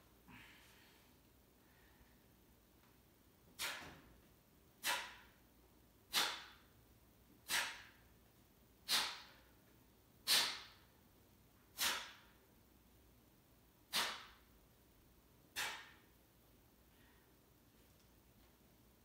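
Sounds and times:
man exhaling sharply: 0:03.6 - 0:04.0, 0:04.8 - 0:05.3, 0:06.1 - 0:06.6, 0:07.4 - 0:08.0, 0:08.9 - 0:09.4, 0:10.2 - 0:10.8, 0:11.8 - 0:12.3, 0:13.9 - 0:14.4, 0:15.6 - 0:16.0.

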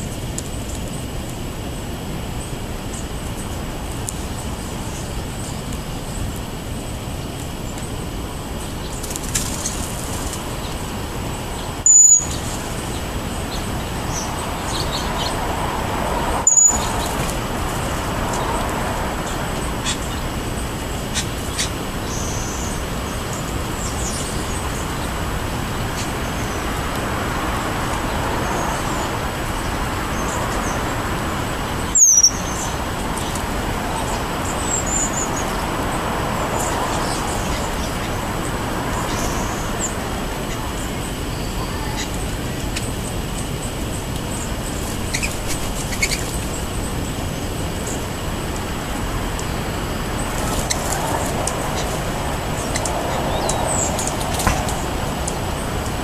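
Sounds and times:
road traffic hum: 0:00.0 - 0:56.0
bird chirps: 0:11.5 - 0:12.6, 0:16.4 - 0:17.2, 0:31.9 - 0:32.8, 0:45.0 - 0:46.4.

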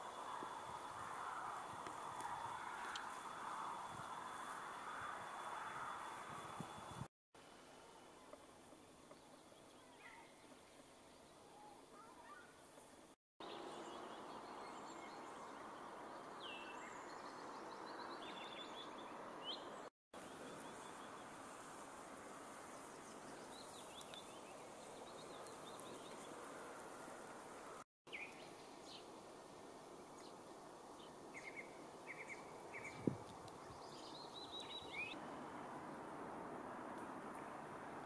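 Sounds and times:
steady low hiss: 0:20.2 - 0:38.0
small birds chirping: 0:22.5 - 0:26.5, 0:31.0 - 0:35.2.

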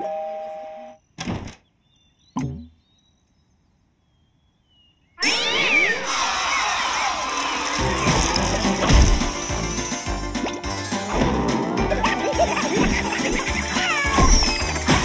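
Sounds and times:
cartoon thunk: 0:01.2 - 0:01.6, 0:08.1 - 0:09.3, 0:14.0 - 0:15.0
cartoon cat-like vocal sound: 0:05.2 - 0:06.6, 0:13.1 - 0:14.6
squeaky cartoon voices cheering: 0:05.2 - 0:08.7, 0:12.0 - 0:15.0.

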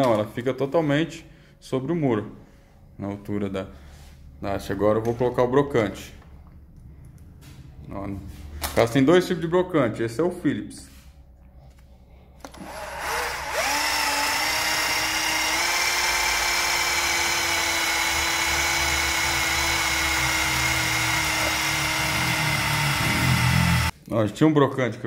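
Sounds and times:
cordless drill driving a screw: 0:12.5 - 0:23.9.

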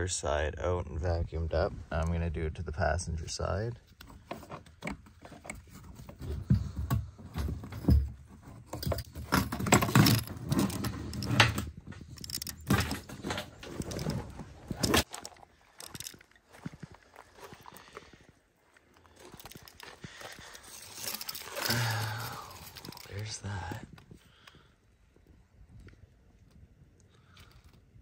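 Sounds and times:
plastic clicks and rattles: 0:08.8 - 0:16.3.

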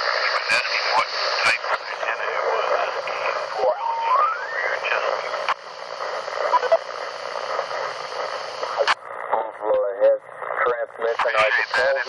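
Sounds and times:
garbled radio voices: 0:00.0 - 0:12.0
radio static and hiss: 0:00.0 - 0:12.0
rising radio whistle: 0:03.5 - 0:05.4, 0:06.4 - 0:06.8.

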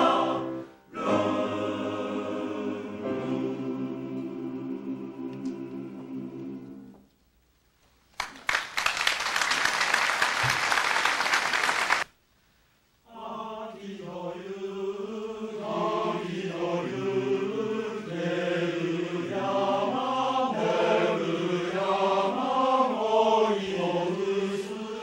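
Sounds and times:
men's choir singing: 0:00.0 - 0:07.0, 0:13.1 - 0:25.0
audience applause: 0:08.2 - 0:12.1.

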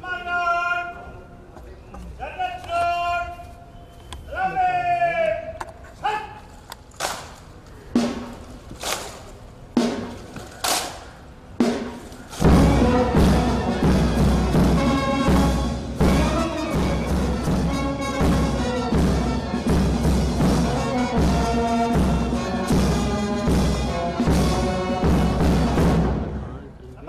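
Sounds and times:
pounding drum beat: 0:08.0 - 0:08.4, 0:09.8 - 0:10.3, 0:11.6 - 0:26.5
ceremonial band music: 0:08.0 - 0:26.7.

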